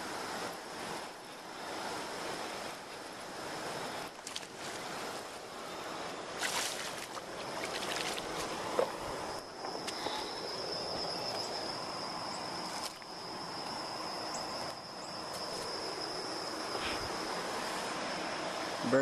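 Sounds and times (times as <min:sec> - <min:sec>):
wind hiss: 0:00.0 - 0:19.0
fish splashing at water surface: 0:06.3 - 0:10.6
lapping water: 0:06.4 - 0:10.7.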